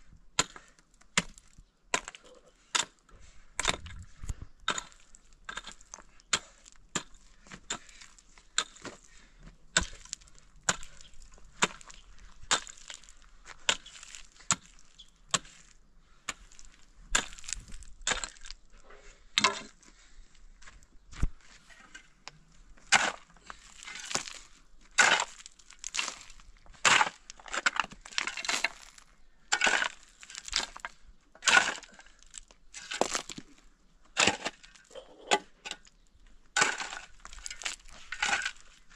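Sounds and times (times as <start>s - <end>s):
pick striking stony ground: 0.4s - 3.0s, 3.6s - 9.1s, 9.7s - 18.6s, 19.3s - 19.8s, 20.6s - 38.9s
shovel scraping gravel: 4.7s - 19.8s, 22.8s - 36.0s, 36.6s - 38.9s.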